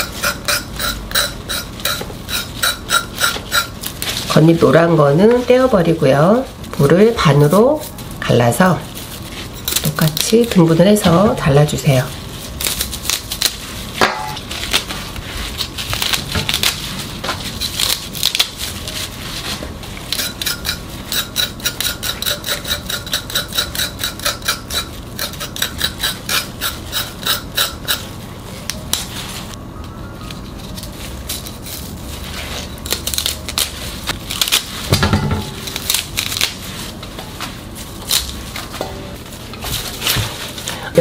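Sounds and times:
knife scraping radish roots: 0:00.0 - 0:05.7, 0:09.0 - 0:11.6, 0:14.3 - 0:29.5
knife cutting stalks: 0:32.9 - 0:36.6.

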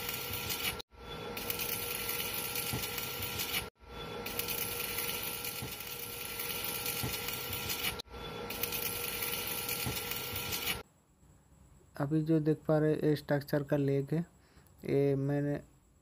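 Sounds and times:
arc welding hiss and crackle: 0:00.0 - 0:10.8
faint machine hum: 0:00.0 - 0:16.0.

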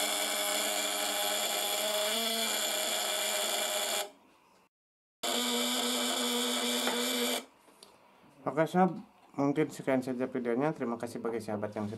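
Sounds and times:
contact breaker buzzing: 0:05.2 - 0:07.5.

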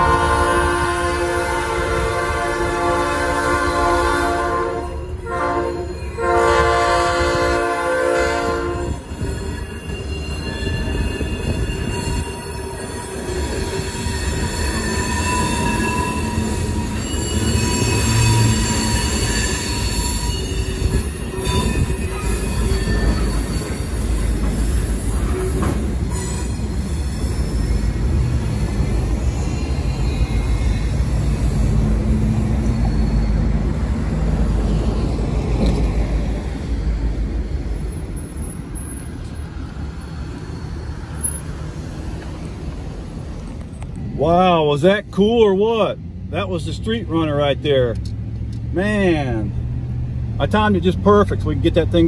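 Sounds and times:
locomotive air horn: 0:00.0 - 0:09.2
freight train rumbling: 0:00.0 - 0:52.0
train wheels squealing: 0:04.8 - 0:06.3, 0:08.7 - 0:44.2.

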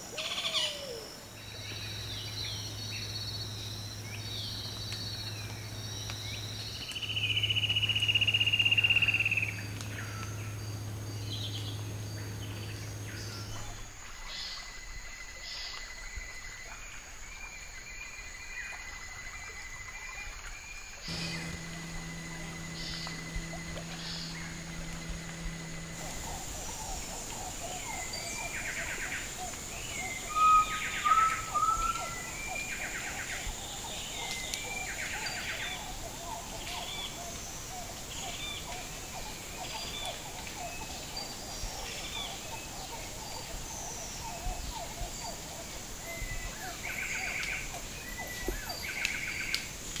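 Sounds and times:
high-pitched hum: 0:00.0 - 0:14.6, 0:21.1 - 0:33.4
birds calling and trilling: 0:00.0 - 0:16.3, 0:19.6 - 0:50.0
whistled bird notes: 0:19.8 - 0:35.9.

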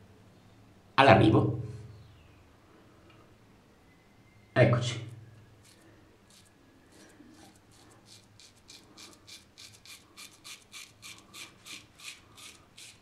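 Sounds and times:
razor scraping stubble: 0:05.6 - 0:13.0.

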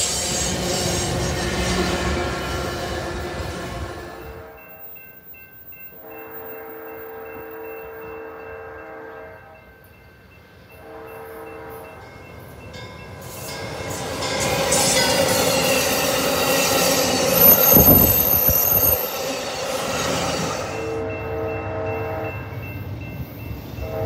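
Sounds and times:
train horn blasts: 0:00.0 - 0:04.8, 0:06.0 - 0:09.7, 0:10.7 - 0:12.0, 0:20.1 - 0:22.6, 0:23.8 - 0:24.0
train running noise: 0:00.0 - 0:24.0.

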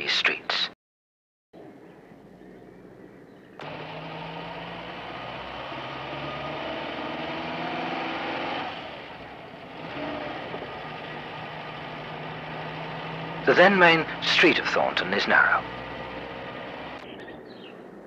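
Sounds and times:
vehicle engine accelerating: 0:03.6 - 0:17.1.

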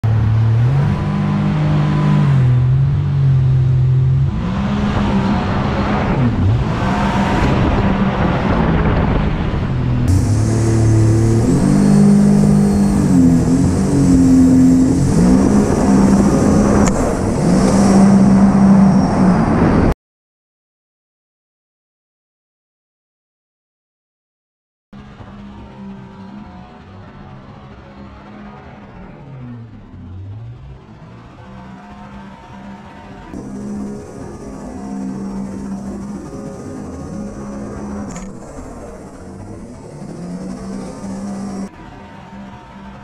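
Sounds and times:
boat motor running hard: 0:10.0 - 0:18.6, 0:33.4 - 0:41.7.

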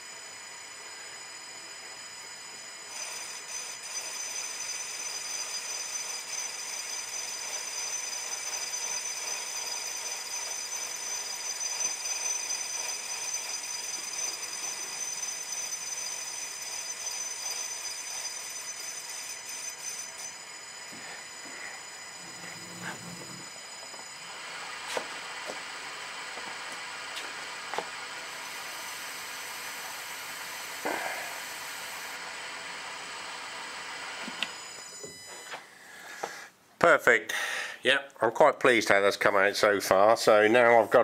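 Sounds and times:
turning tool cutting metal: 0:00.0 - 0:35.6
lathe whining: 0:00.0 - 0:36.4.

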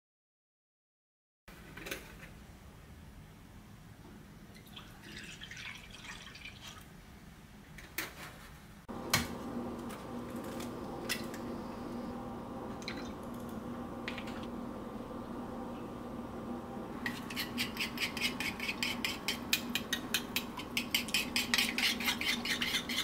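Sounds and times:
milk pouring into a bowl: 0:04.6 - 0:06.8
steady hum: 0:08.9 - 0:23.0.

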